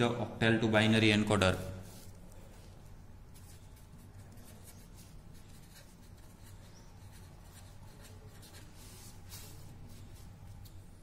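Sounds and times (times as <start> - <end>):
pen scratching on paper: 3.3 - 10.4.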